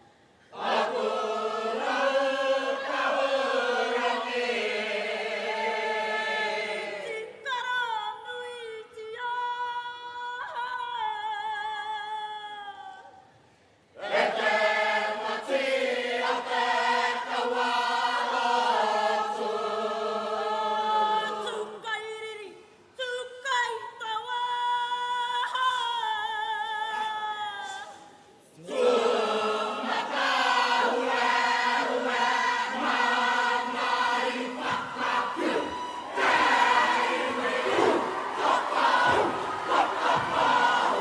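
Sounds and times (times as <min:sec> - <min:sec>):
group singing in chorus: 0:00.0 - 0:07.5, 0:14.0 - 0:21.9, 0:28.6 - 0:41.0.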